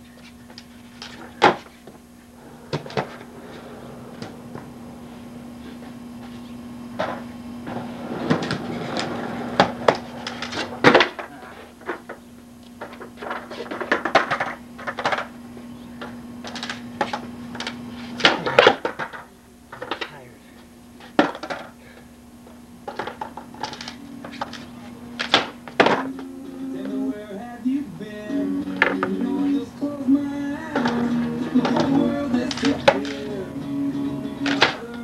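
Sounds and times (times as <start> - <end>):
steady low hum: 0.0 - 35.0
skateboard wheels rolling on concrete: 0.1 - 20.2, 22.4 - 35.0
skateboard clacks and slaps: 7.0 - 11.3, 12.8 - 15.3, 34.4 - 35.0.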